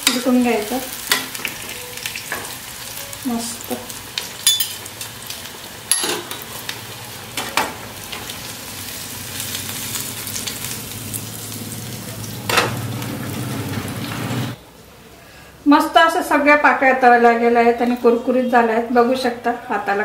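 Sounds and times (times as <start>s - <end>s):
hot oil sizzling: 0.0s - 14.6s
metal spoon clinking on pan: 4.4s - 4.9s, 5.9s - 6.4s.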